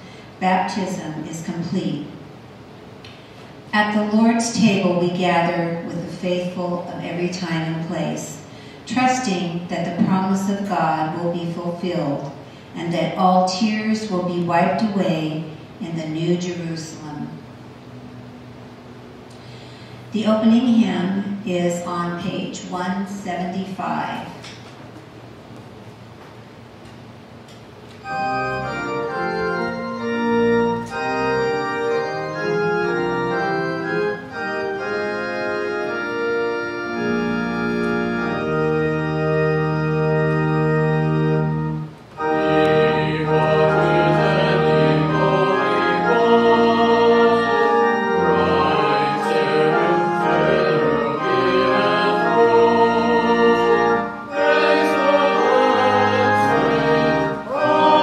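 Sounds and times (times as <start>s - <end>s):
church organ chords: 13.0s - 22.8s, 26.4s - 58.0s
voices singing: 42.2s - 58.0s.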